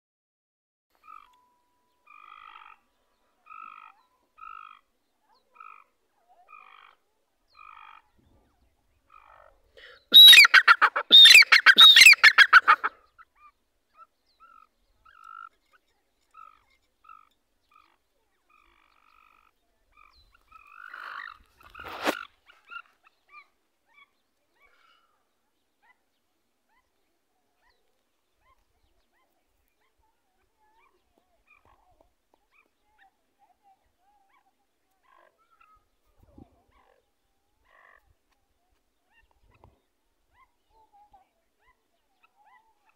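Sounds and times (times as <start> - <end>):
francolin calling: 9.2 - 13.0.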